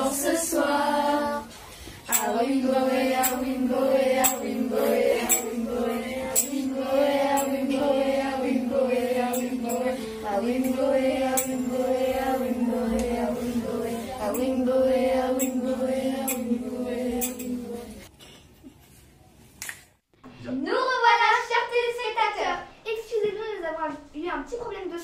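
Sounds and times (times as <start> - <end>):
group singing chant-like tune: 0.0 - 18.1.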